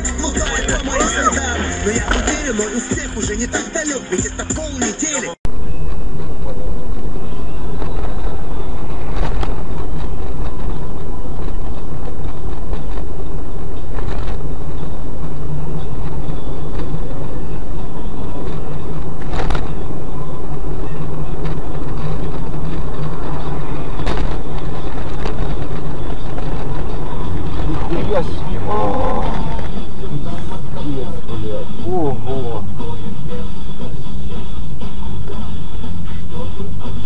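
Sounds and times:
car engine and road noise: 0.0s - 37.0s.

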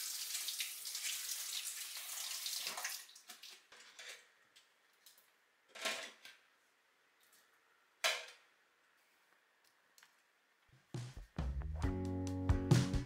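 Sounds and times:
kitchen tap running: 0.0s - 3.7s.

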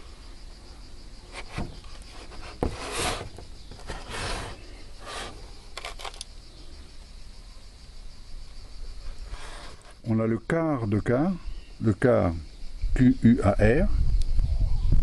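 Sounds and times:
wooden object rubbing and scraping: 1.3s - 6.2s, 9.2s - 10.0s.

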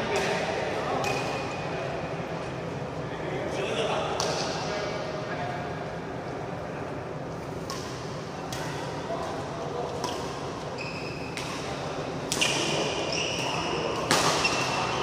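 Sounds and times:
rackets striking shuttlecock: 0.1s - 1.5s, 4.2s - 4.6s, 7.6s - 15.0s
shoes squeaking on court: 10.6s - 11.6s, 12.3s - 15.0s.

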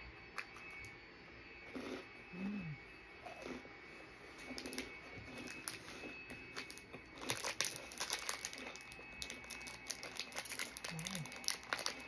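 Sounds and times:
snack wrapper crinkling: 4.5s - 12.0s.

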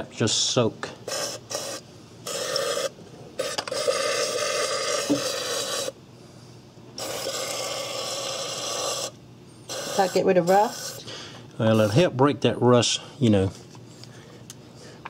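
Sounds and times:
aerosol spray hissing: 9.7s - 11.0s.

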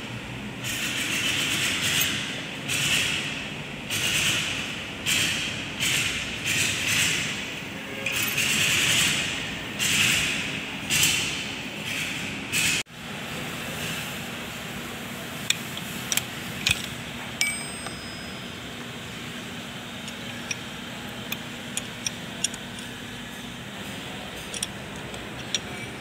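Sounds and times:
steel tool clinking on metal: 17.4s - 18.6s.

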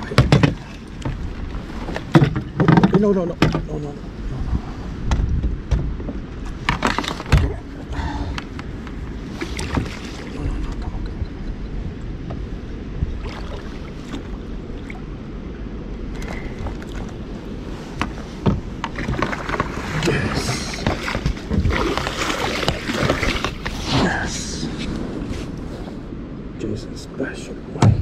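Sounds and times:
steady low rumble: 0.0s - 28.0s
gear knocking against kayak hull: 1.9s - 3.7s.

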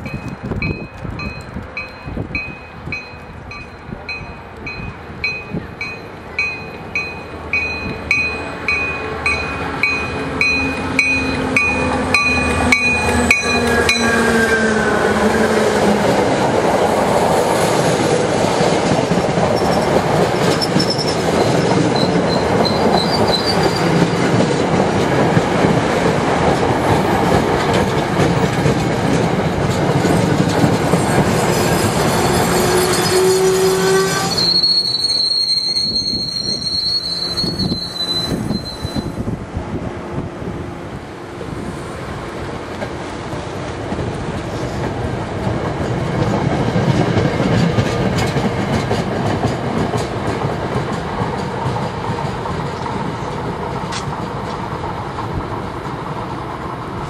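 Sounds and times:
train bell ringing: 0.0s - 14.6s
locomotive passing: 0.0s - 57.0s
train wheels rumbling on rails: 0.0s - 57.0s
faint wheel squeal: 20.6s - 24.1s, 31.7s - 39.2s.

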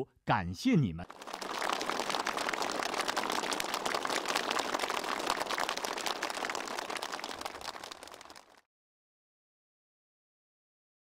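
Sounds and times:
crowd applauding: 1.0s - 8.7s.

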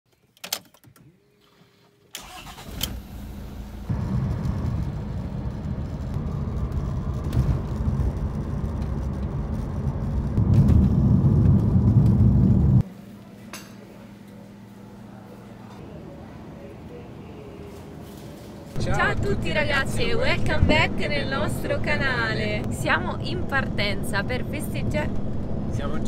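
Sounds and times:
car engine starting and rumbling: 2.2s - 12.8s.

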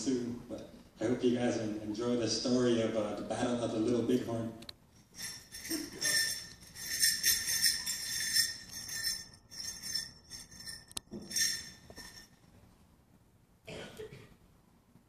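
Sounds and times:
bells jingling: 4.9s - 12.5s.

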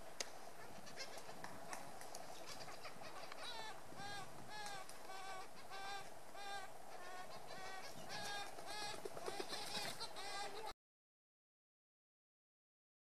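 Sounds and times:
woodpecker calling: 2.3s - 10.7s.

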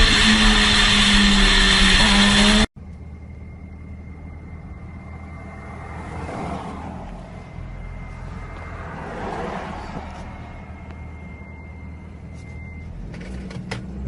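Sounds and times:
motorcycle engine running: 0.0s - 3.0s
road rumble inside a car: 2.7s - 14.0s.

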